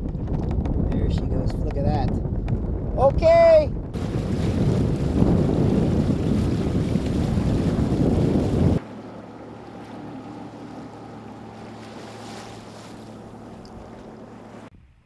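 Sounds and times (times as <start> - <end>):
wind buffeting microphone: 0.0 - 8.9
boat engine droning: 4.0 - 14.7
rushing water: 4.0 - 14.7.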